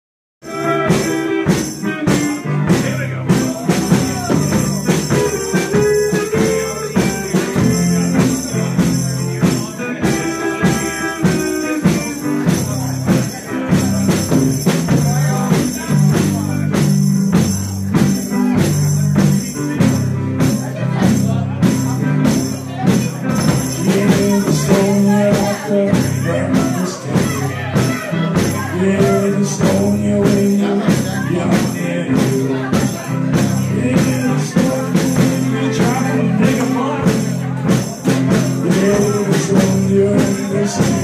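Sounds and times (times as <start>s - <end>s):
bass line: 0.4s - 41.0s
live band playing loud music: 0.4s - 41.0s.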